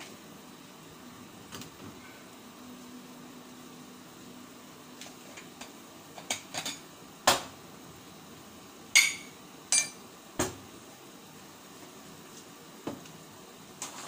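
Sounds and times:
cookware knocks and clinks: 9.0 - 10.0.

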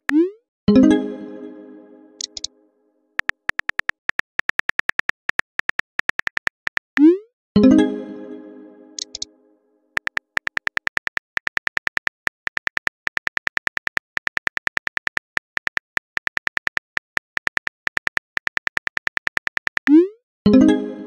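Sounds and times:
phone keyboard key clicks: 2.2 - 2.5, 3.2 - 6.8, 9.0 - 9.3, 10.0 - 19.9.

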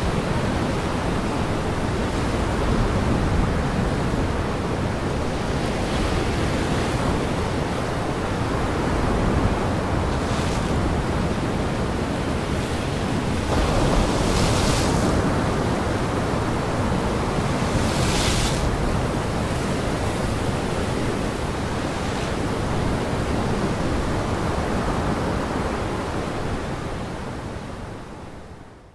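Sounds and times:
wind blowing: 0.0 - 26.1
waves breaking on shore: 0.0 - 28.2.

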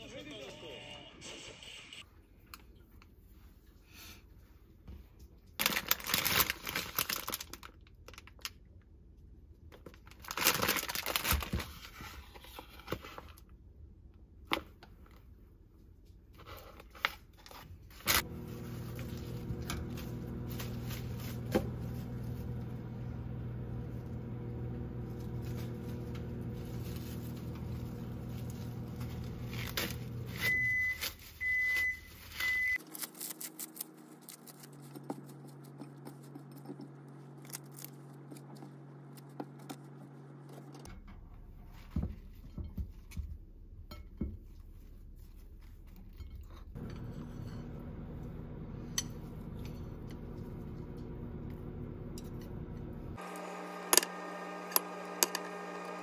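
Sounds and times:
plastic packaging crinkling: 5.5 - 8.6, 9.9 - 12.0, 26.6 - 39.3
microwave oven humming: 18.1 - 42.0, 46.7 - 56.0
microwave beeps: 30.3 - 32.8.

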